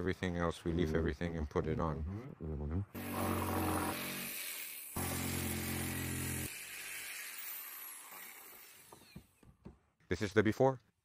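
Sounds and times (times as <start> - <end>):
electric jigsaw cutting wood: 3.0 - 9.3.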